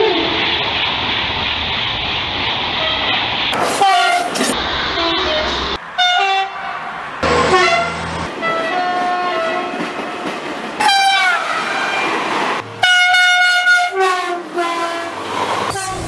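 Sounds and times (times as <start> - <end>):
train rushing by: 0.0 - 16.0
train horn blasts: 3.8 - 4.3, 6.0 - 9.9, 10.8 - 12.0, 12.7 - 16.0.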